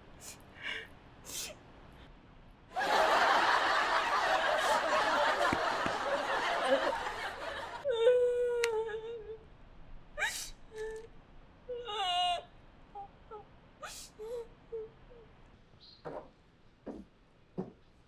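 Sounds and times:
woman sniffling: 0.2s - 1.6s
woman sobbing: 7.8s - 9.5s, 11.7s - 15.3s.

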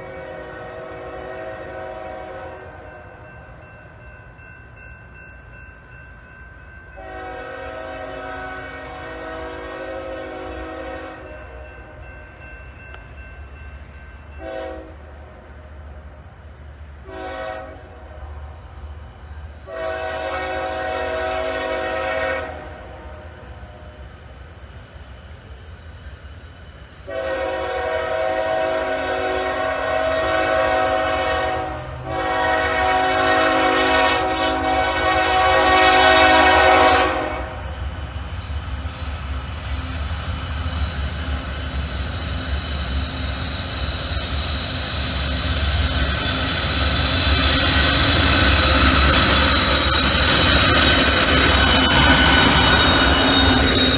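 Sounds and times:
locomotive air horn blasts: 0.0s - 2.9s, 7.0s - 11.4s, 14.4s - 15.0s, 17.0s - 18.3s, 19.6s - 23.0s, 27.1s - 37.6s
diesel locomotive rumble: 0.0s - 53.9s
train wheels on rails: 0.0s - 53.9s.

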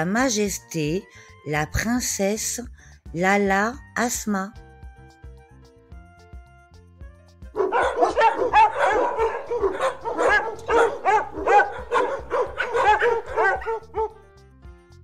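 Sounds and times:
dogs yapping: 7.6s - 14.2s.

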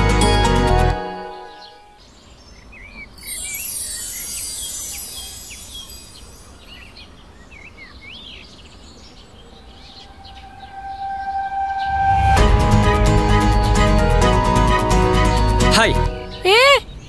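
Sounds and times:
music: 0.0s - 1.9s, 3.2s - 6.5s, 10.4s - 16.6s
small birds chirping: 1.6s - 11.9s, 16.2s - 17.0s
steady held tone: 9.4s - 15.6s.

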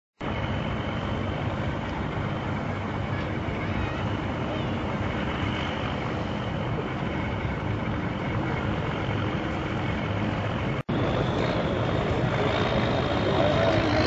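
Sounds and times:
heavy truck engine running: 0.2s - 14.0s.

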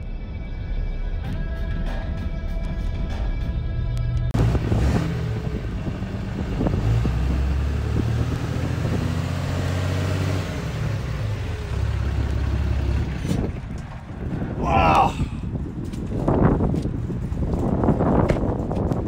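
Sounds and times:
diesel engine idling: 3.7s - 15.7s.

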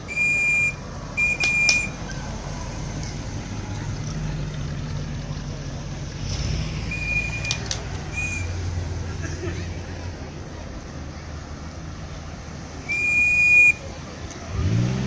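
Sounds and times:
car engine low rumble: 0.0s - 15.0s
sharp clicks: 1.2s - 2.0s, 6.2s - 8.6s
short high whistle-like tone: 6.2s - 9.0s, 12.8s - 13.9s.

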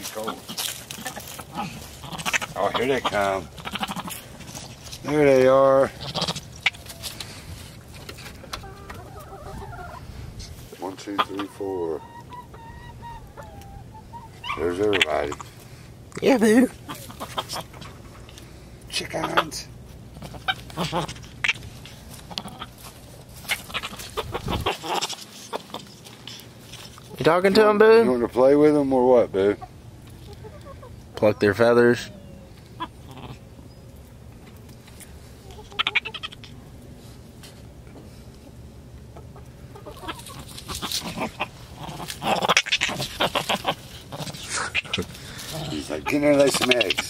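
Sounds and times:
hens clucking: 0.0s - 36.9s, 37.6s - 47.0s.

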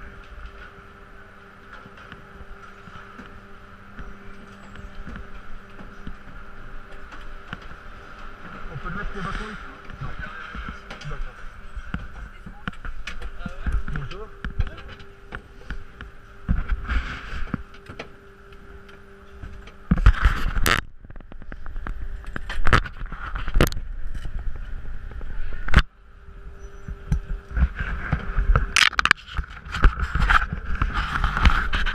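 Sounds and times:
skis scraping over snow: 7.1s - 12.6s, 27.5s - 31.9s.

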